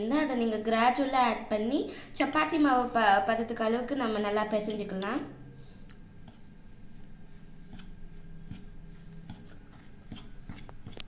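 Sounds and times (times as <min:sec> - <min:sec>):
spoon scraping crumbs in bowl: 0:06.2 - 0:11.0.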